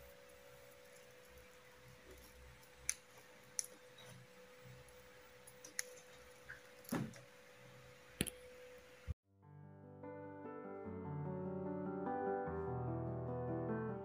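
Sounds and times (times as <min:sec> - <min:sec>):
crackle: 0:00.0 - 0:08.8.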